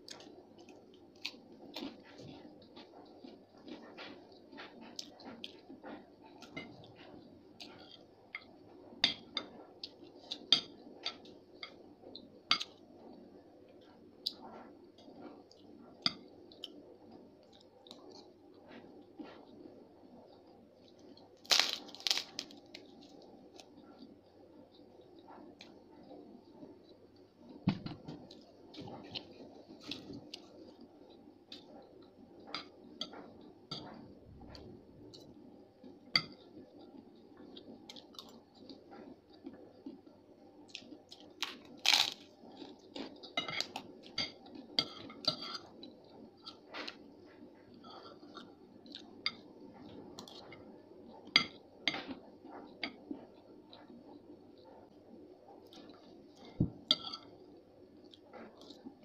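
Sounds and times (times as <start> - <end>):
crunchy chewing: 0.0 - 8.1, 20.3 - 27.6, 28.3 - 32.2, 32.8 - 51.3.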